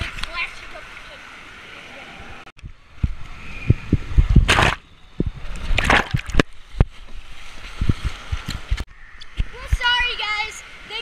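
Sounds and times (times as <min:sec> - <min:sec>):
loud water splashes: 0:04.4 - 0:04.8, 0:05.4 - 0:06.6.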